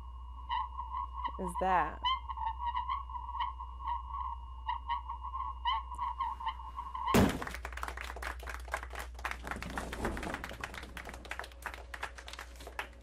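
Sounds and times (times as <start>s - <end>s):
humming tone with pulses: 0.0s - 7.1s
loud thump: 7.2s - 7.6s.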